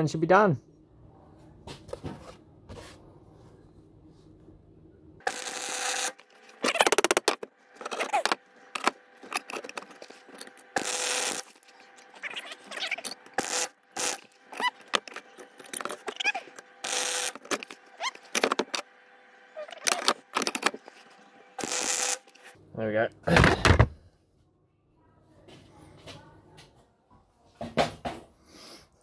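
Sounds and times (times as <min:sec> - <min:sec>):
welder arc crackling: 0:05.2 - 0:18.8, 0:21.6 - 0:22.6.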